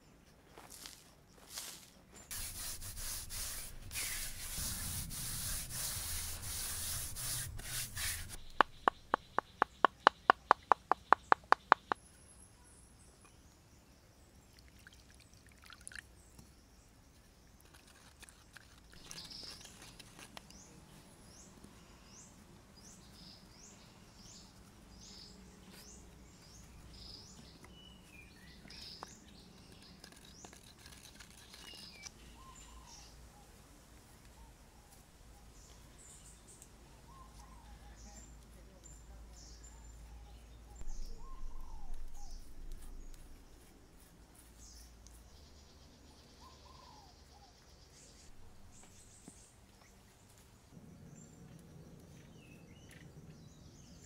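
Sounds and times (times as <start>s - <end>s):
hands scraping soil: 0.6s - 12.0s, 17.6s - 20.7s, 27.3s - 32.1s, 40.8s - 45.4s
birds chirping: 2.2s - 13.6s, 35.4s - 50.4s
sharp taps: 7.6s - 12.0s.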